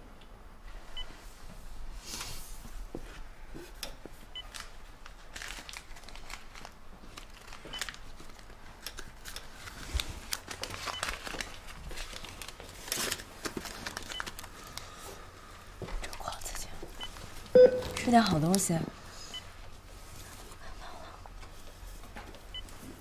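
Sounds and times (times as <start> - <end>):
plastic packaging crinkling: 4.5 - 15.0
monitor beep: 17.0 - 18.4.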